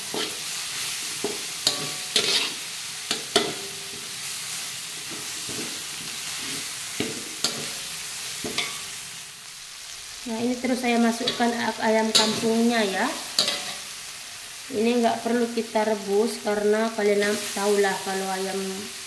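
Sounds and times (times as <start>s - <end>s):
spatula scraping a pan: 0.0s - 4.2s, 5.0s - 9.0s, 11.2s - 13.9s
spice paste sizzling in a wok: 0.0s - 19.0s.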